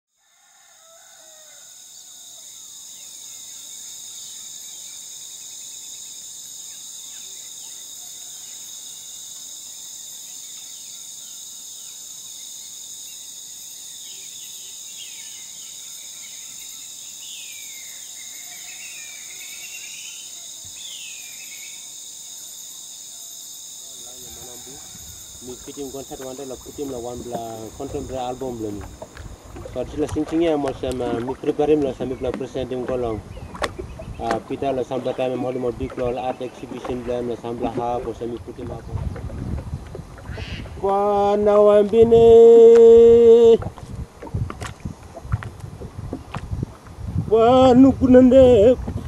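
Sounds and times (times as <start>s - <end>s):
insect chorus droning: 0.1s - 49.0s
birds whistling calls: 14.0s - 21.9s.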